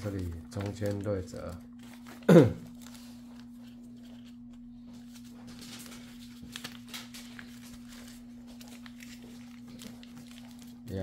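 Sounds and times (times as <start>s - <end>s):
electrical hum: 0.0s - 11.0s
paper being folded: 0.0s - 11.0s.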